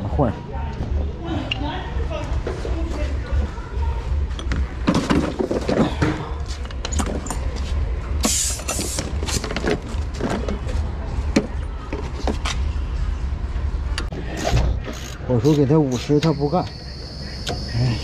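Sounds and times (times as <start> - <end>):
steady low rumble: 9.9 - 15.3.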